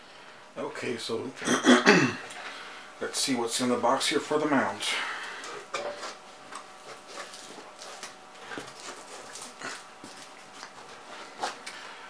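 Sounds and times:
packing material rustling: 6.7s - 11.8s.

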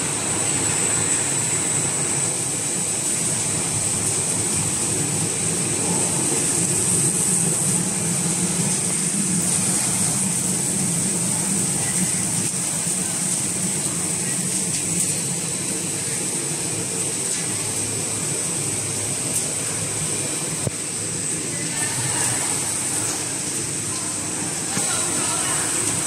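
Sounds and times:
factory machinery running: 0.0s - 26.0s
high machine whine: 0.0s - 26.0s.

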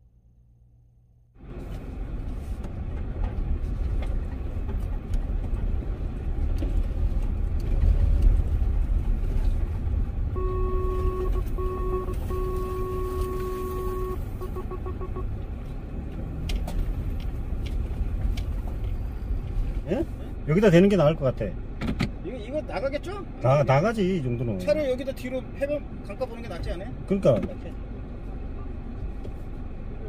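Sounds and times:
car engine and tyres rumbling: 0.0s - 30.0s
in-car electronic warning beep: 10.3s - 15.3s.

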